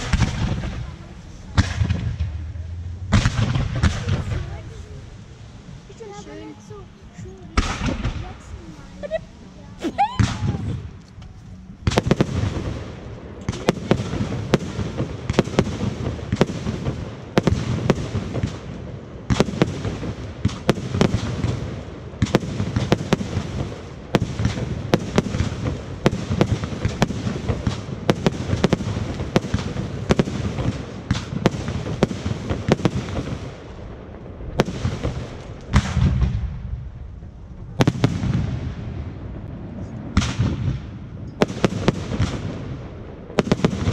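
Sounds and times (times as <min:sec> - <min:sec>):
low rumble: 0:00.0 - 0:15.3, 0:33.6 - 0:41.5
fireworks bangs and cracks: 0:00.0 - 0:43.9.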